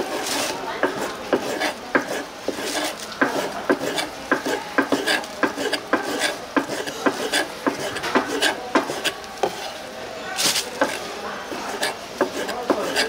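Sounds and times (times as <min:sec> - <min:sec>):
knife chopping on cutting board: 0:00.8 - 0:09.6, 0:11.7 - 0:13.0.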